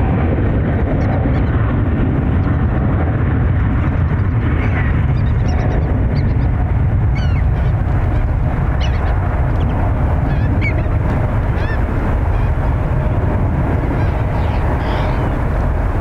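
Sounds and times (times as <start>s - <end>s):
steady low rumble: 0.0s - 16.0s
birds calling: 4.8s - 13.2s, 13.8s - 15.5s.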